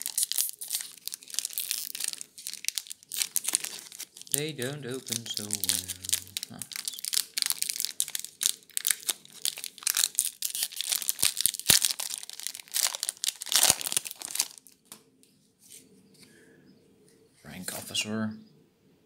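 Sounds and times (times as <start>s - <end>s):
foil wrapper crinkling and tearing: 0.0s - 14.9s.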